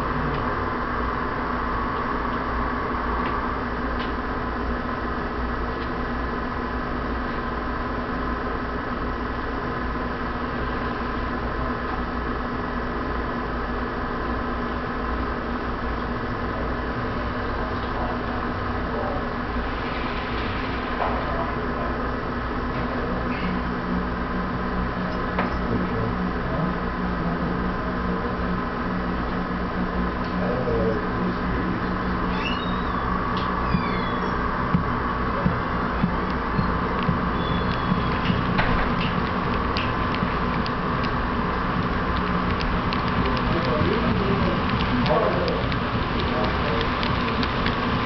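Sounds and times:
model train cars rumbling: 0.0s - 48.0s
steady hum: 0.0s - 48.0s
model freight cars rumbling: 33.0s - 48.0s.

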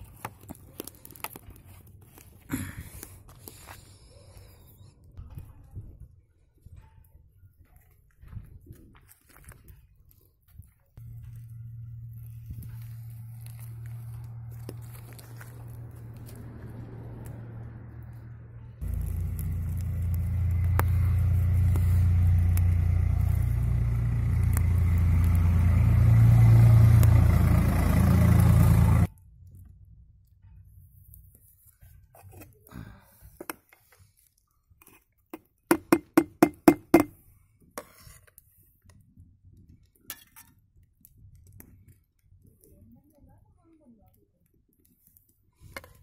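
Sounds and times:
loud low rumble: 11.0s - 29.2s.

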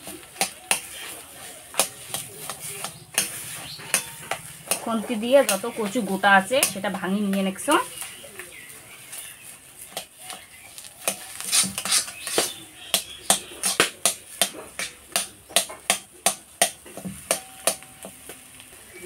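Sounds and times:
metal spatula scraping iron pan: 0.7s - 7.0s, 9.2s - 15.0s.

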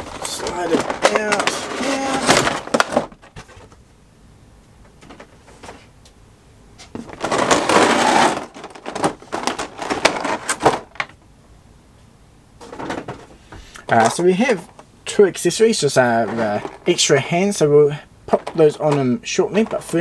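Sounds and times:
plastic packaging crinkling: 0.0s - 3.8s, 7.0s - 11.2s.

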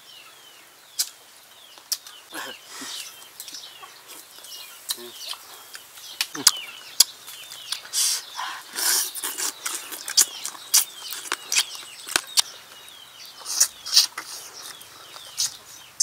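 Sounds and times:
birds chirping faintly: 0.0s - 16.0s
people chewing and slurping: 1.9s - 15.8s.

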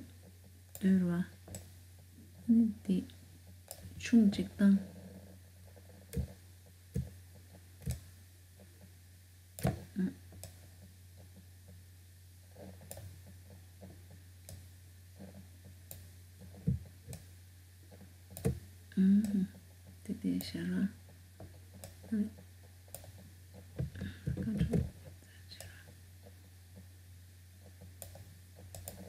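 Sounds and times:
low electrical hum: 0.0s - 29.0s.

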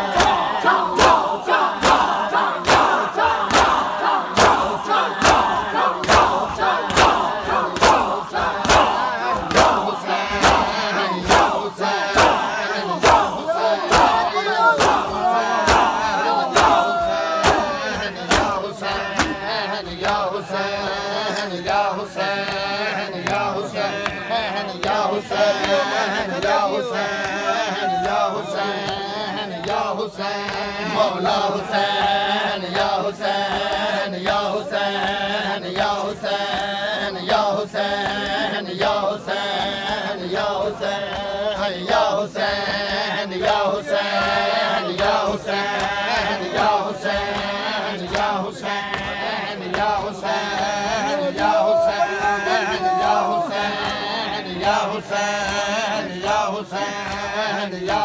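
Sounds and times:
crowd shouting: 0.0s - 58.0s
men chanting in unison: 0.0s - 58.0s
chest-beating slaps: 0.1s - 11.6s, 12.2s - 20.3s.

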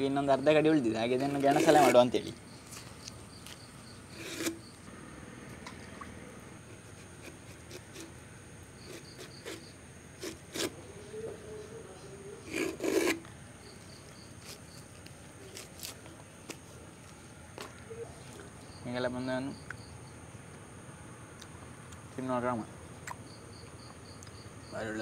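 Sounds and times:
insect trilling: 0.0s - 15.6s.

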